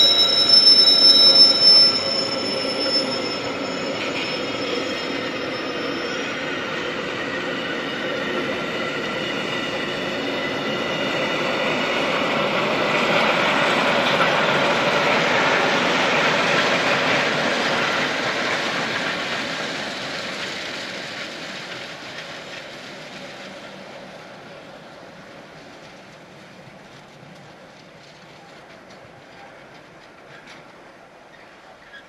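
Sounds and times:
high wheel squeal: 0.0 - 20.5
train wheels rumbling on rails: 0.0 - 32.0.

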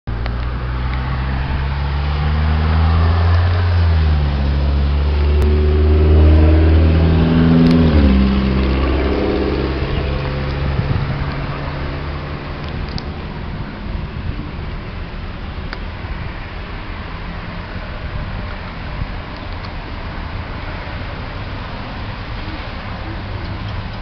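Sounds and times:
vehicle driving past: 0.2 - 14.3.

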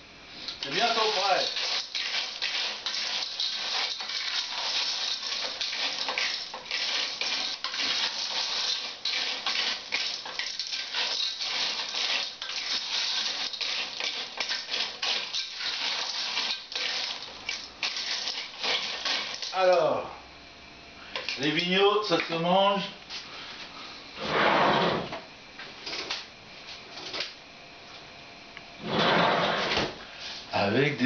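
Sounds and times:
shells clattering in metal pot: 0.5 - 19.8.

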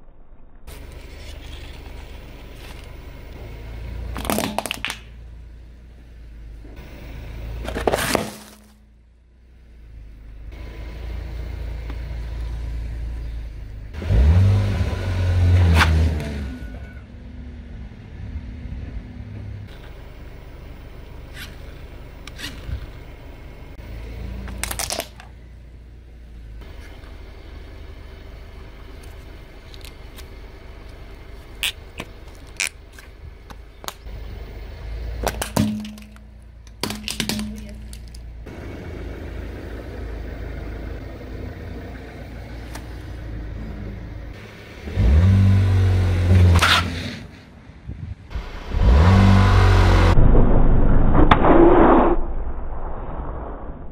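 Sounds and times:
car engine idling: 0.7 - 15.6, 16.2 - 46.6
plastic toys cracking: 4.2 - 5.1, 24.5 - 25.3
car engine revving: 10.5 - 22.6, 38.4 - 47.3, 48.3 - 52.0.

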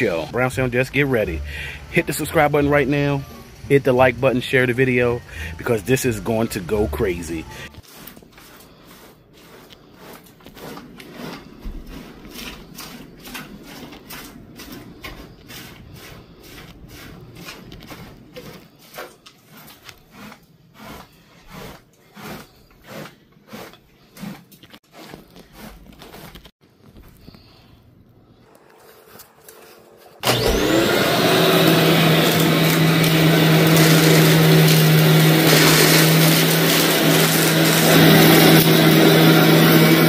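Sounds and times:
rubbing and knocking sounds: 7.1 - 27.5, 28.9 - 40.0.

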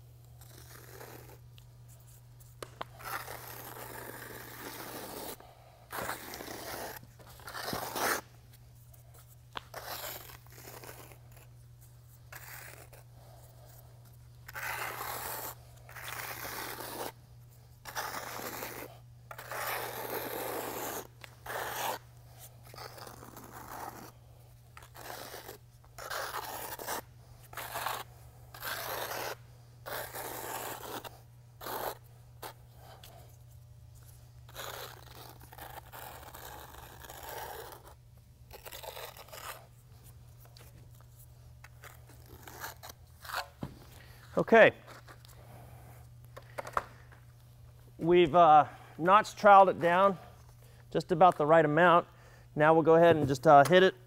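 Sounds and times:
steady low hum: 0.0 - 54.0
trowel scraping epoxy on concrete: 0.4 - 1.4, 3.0 - 8.3, 9.6 - 11.5, 12.3 - 13.1, 14.5 - 17.2, 17.8 - 22.0, 22.6 - 24.2, 24.8 - 32.6, 34.5 - 39.7, 41.7 - 43.5.

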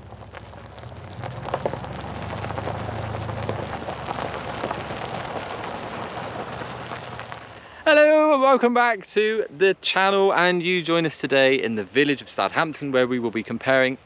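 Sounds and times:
rain falling: 0.0 - 7.8.

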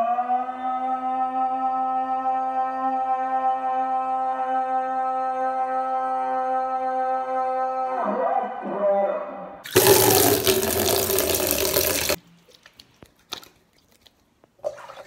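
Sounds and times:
water dripping and splashing: 9.7 - 12.2
water tap gushing into sink: 9.7 - 12.2.

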